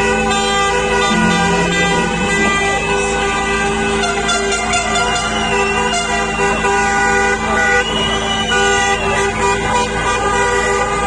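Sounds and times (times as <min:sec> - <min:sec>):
car horns honking: 0:01.0 - 0:11.0
higher horn tone rising and falling: 0:01.1 - 0:05.4.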